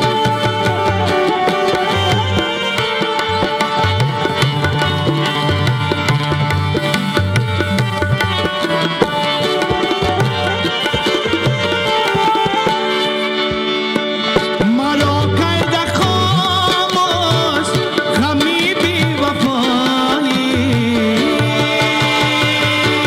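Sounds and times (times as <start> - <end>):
saxophone melody: 0.0 - 18.1
tabla: 0.0 - 23.0.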